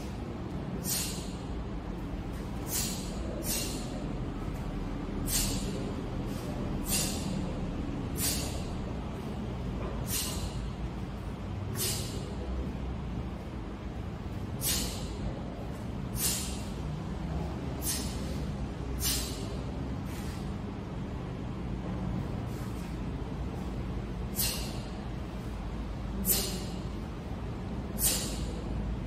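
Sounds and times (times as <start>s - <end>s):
low background rumble: 0.0s - 29.0s
sharp breath bursts: 0.8s - 1.5s, 2.4s - 4.1s, 5.2s - 8.8s, 10.0s - 10.8s, 11.7s - 12.4s, 14.5s - 15.4s, 16.1s - 16.8s, 17.8s - 20.6s, 24.2s - 25.5s, 26.1s - 27.0s, 27.8s - 28.7s.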